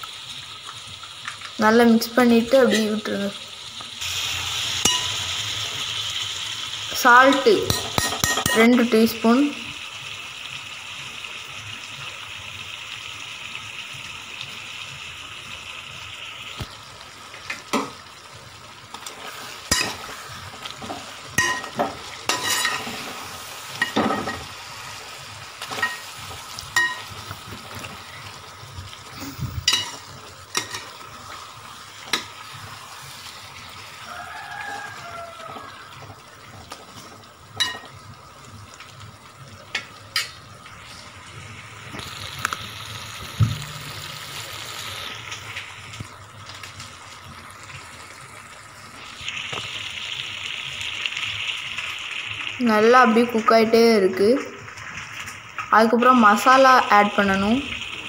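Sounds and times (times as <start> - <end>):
food sizzling in a pot: 0.0 - 58.0
spoon scraping a metal pot: 21.4 - 23.1.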